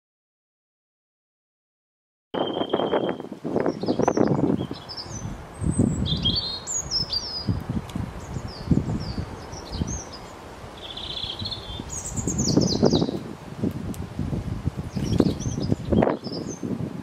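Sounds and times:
small birds chirping: 0:02.4 - 0:13.3, 0:14.8 - 0:16.8
wind buffeting: 0:02.4 - 0:17.0.

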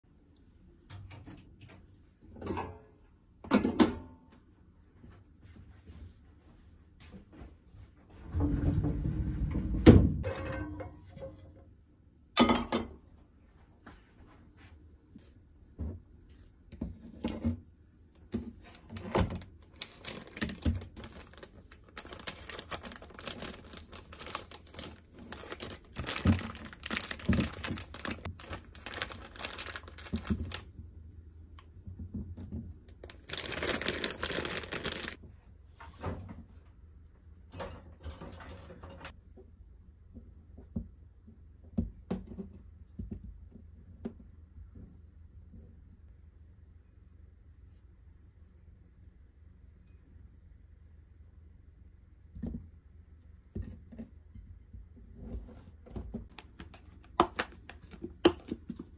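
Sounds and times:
plastic packaging crinkling and tearing: 0:18.7 - 0:30.7, 0:32.9 - 0:35.2, 0:56.3 - 0:58.6.

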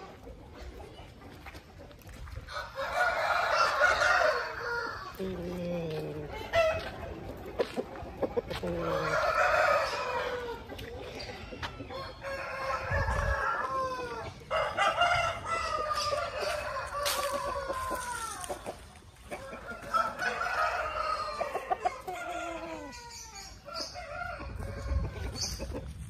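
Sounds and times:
roosters crowing: 0:02.5 - 0:05.4, 0:08.5 - 0:25.6.

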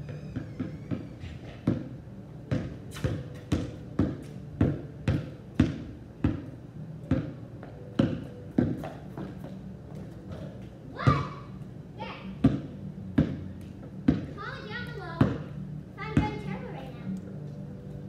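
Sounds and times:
basketball bouncing on concrete: 0:00.0 - 0:11.4, 0:12.4 - 0:14.4, 0:15.2 - 0:15.5, 0:16.1 - 0:16.6.

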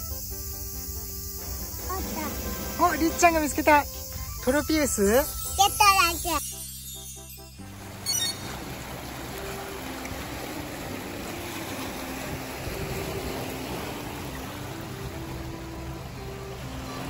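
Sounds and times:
soft melody of held notes: 0:01.4 - 0:17.0
waves lapping among rocks: 0:07.8 - 0:17.0.

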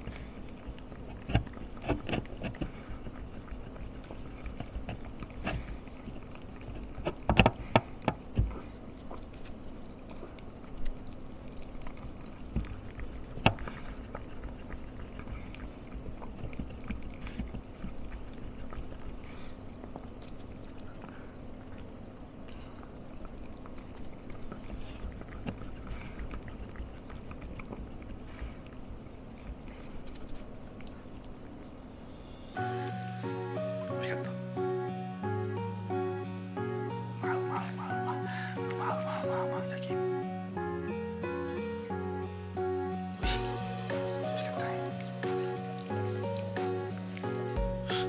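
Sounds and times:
dog chewing food crunches: 0:00.0 - 0:31.7
faint steady hum: 0:00.0 - 0:48.0.

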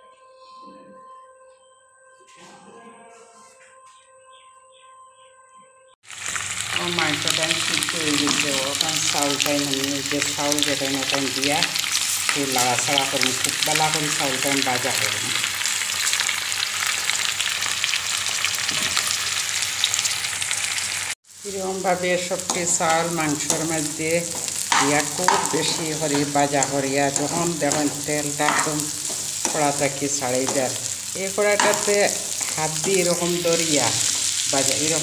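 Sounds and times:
rice and meat sizzling in oil: 0:06.0 - 0:35.0
person speaking: 0:06.8 - 0:11.7, 0:12.3 - 0:15.4, 0:21.5 - 0:35.0
spatula stirring in a pan: 0:24.3 - 0:29.8.

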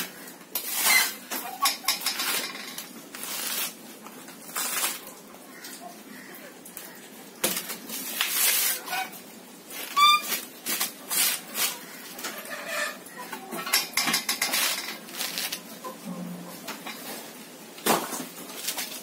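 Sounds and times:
coconut husk tearing: 0:00.0 - 0:05.8, 0:06.8 - 0:13.0, 0:14.2 - 0:15.9, 0:18.4 - 0:19.0.

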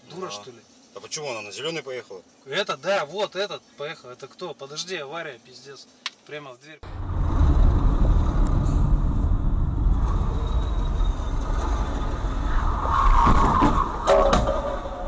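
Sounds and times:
road and engine rumble: 0:06.8 - 0:15.0.

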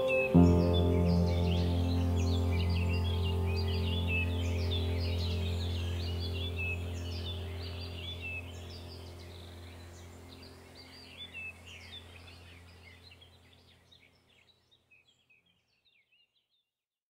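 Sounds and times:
steady low hum: 0:00.0 - 0:13.6.

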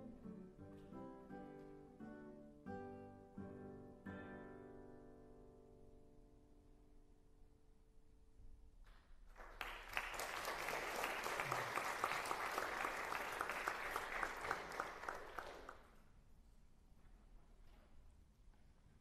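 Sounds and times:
audience applauding: 0:09.3 - 0:16.0.

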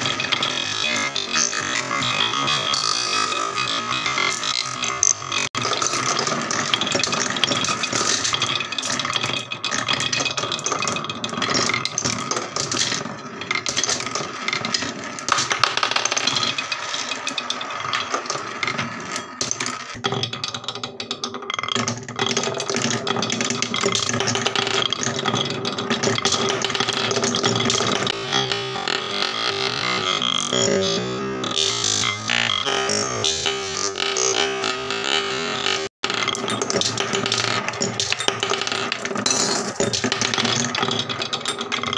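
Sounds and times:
background music with held tones: 0:26.2 - 0:40.6.

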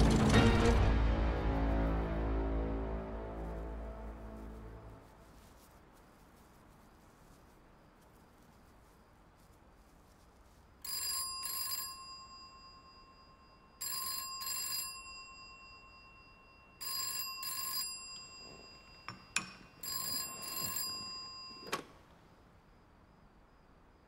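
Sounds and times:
telephone bell ringing: 0:10.8 - 0:22.0.

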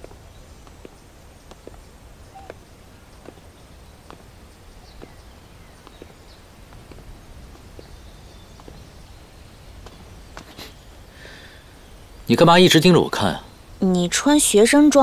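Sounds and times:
footsteps on brick path: 0:00.0 - 0:11.5
low outdoor rumble: 0:00.0 - 0:15.0.

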